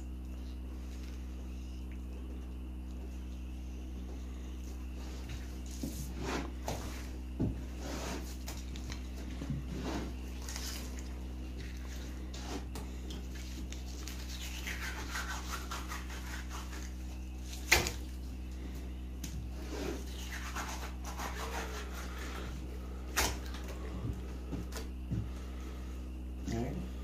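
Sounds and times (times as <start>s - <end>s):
steady low hum: 0.0s - 27.0s
knife scraping fish fillet: 13.4s - 17.9s, 19.6s - 22.5s.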